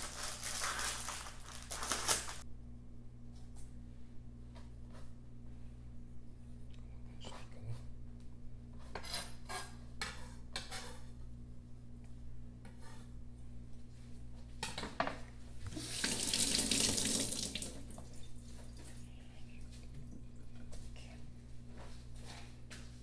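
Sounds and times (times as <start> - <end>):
water running from a tap: 15.7 - 18.3.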